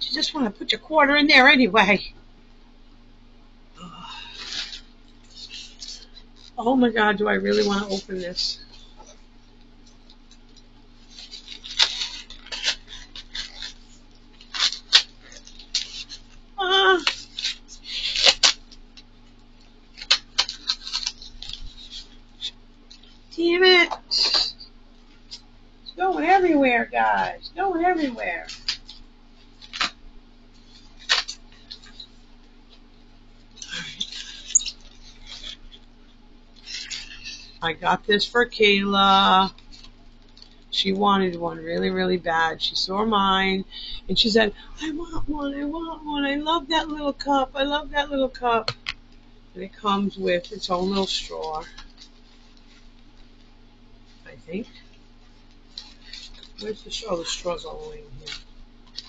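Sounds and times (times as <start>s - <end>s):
steady low hum: 0.0s - 59.0s
styrofoam scraping and rubbing: 4.2s - 9.2s, 11.0s - 18.8s
scissors cutting packing tape: 11.1s - 18.8s, 20.0s - 22.6s, 31.0s - 32.0s.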